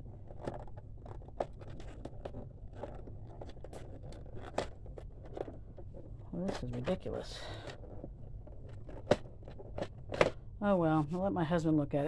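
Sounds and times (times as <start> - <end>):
plastic clicks and scrapes: 0.0 - 10.4
sharp plastic knocks: 8.8 - 10.4.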